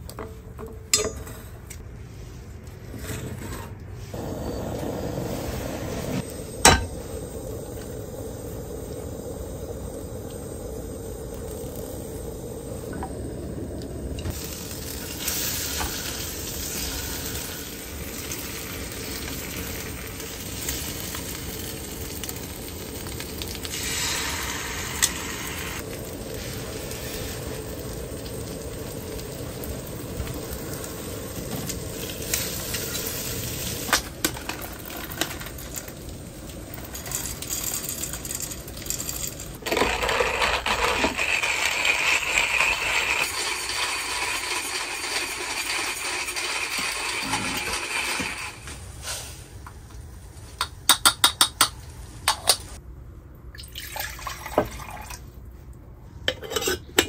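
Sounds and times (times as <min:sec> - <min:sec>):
bread sizzling in a pan: 0:14.3 - 0:38.9, 0:39.9 - 0:49.4
hand-cranked coffee grinder: 0:36.9 - 0:48.7.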